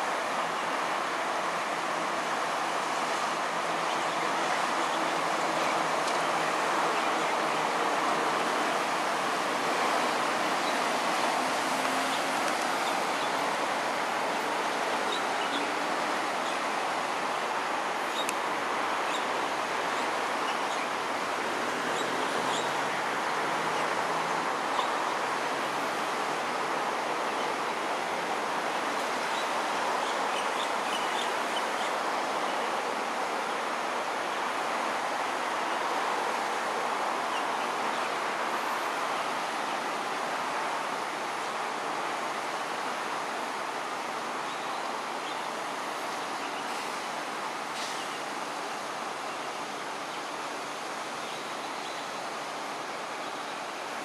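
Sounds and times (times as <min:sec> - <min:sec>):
rushing hiss: 0:46.6 - 0:49.0.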